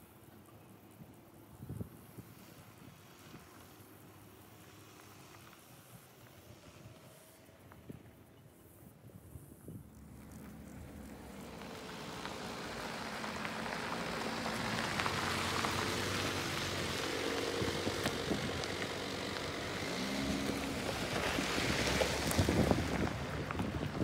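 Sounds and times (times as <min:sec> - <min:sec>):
vehicle engines running: 0:09.4 - 0:24.0
tyres crunching on gravel: 0:09.9 - 0:24.0.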